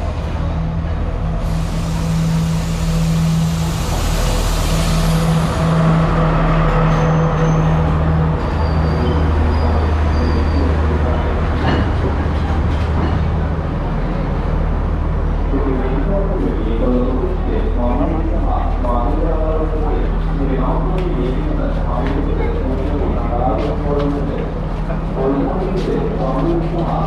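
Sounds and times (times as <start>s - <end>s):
diesel train engine droning: 0.0s - 27.0s
brake squeals: 6.8s - 10.8s
train clunk: 11.3s - 13.6s.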